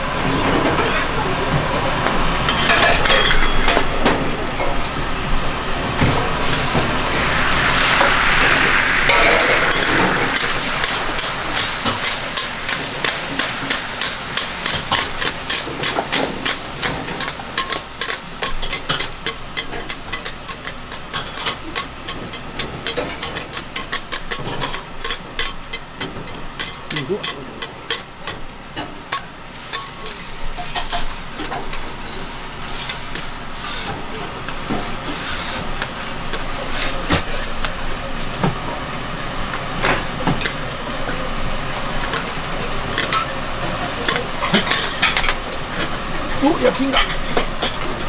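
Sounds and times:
egg sizzling: 0:06.3 - 0:33.8
metal spatulas scraping griddle: 0:29.1 - 0:37.5.

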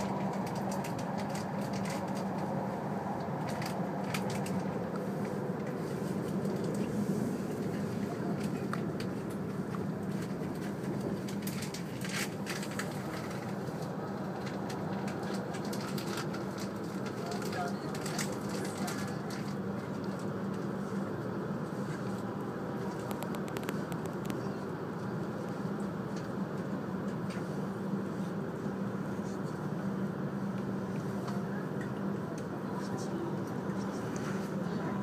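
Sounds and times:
train cabin rumble and hum: 0:00.0 - 0:35.0.

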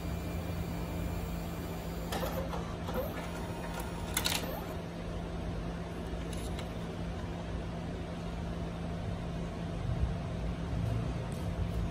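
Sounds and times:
steady low hum: 0:00.0 - 0:11.9.

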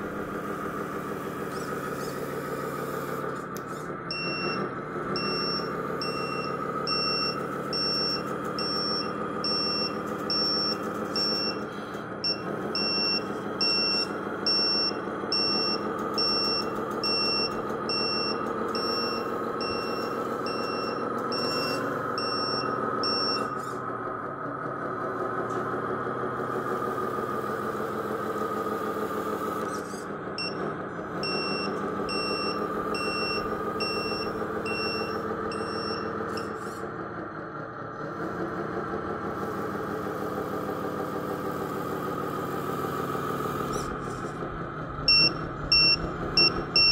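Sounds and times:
toy truck drive humming: 0:00.0 - 0:46.9
reversing beeper: 0:04.1 - 0:23.8, 0:29.6 - 0:36.8, 0:43.3 - 0:44.4, 0:45.0 - 0:46.9.

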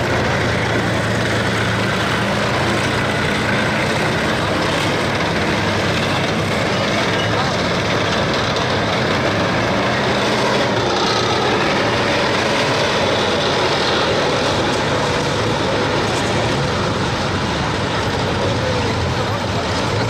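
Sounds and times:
tank engines running: 0:00.0 - 0:20.0
tank tracks rolling on asphalt: 0:00.0 - 0:20.0.

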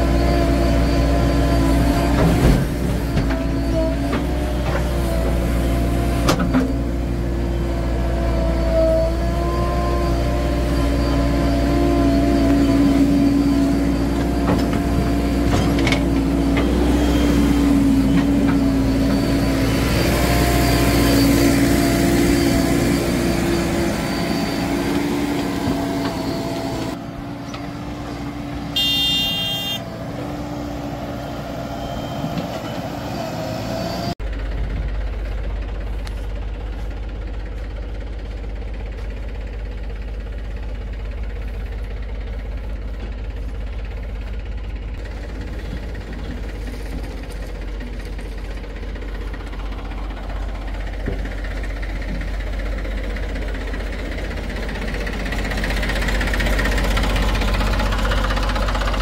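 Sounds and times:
heavy diesel engines running: 0:00.0 - 0:59.0
short high-pitched tone: 0:28.8 - 0:29.8.

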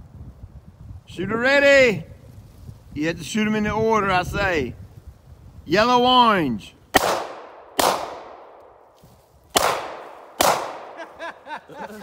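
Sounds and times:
handgun shots with ringing echo: 0:07.0 - 0:08.6, 0:09.6 - 0:11.0.

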